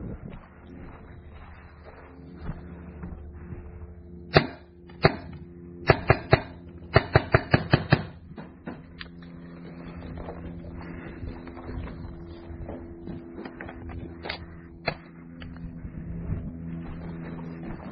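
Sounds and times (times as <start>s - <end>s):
paintball marker shots: 4.3s - 8.2s.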